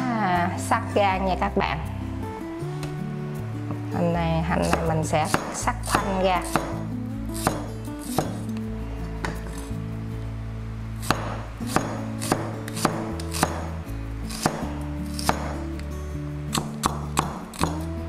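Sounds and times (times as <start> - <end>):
background music: 0.0 - 18.0
cleaver knocking on chopping block: 4.7 - 6.8.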